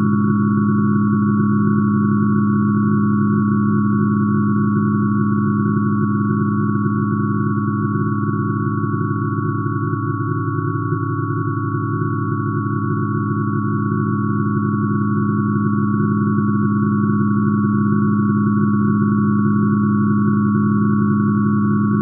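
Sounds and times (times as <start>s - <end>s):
steady sine tones: 0.0s - 22.0s.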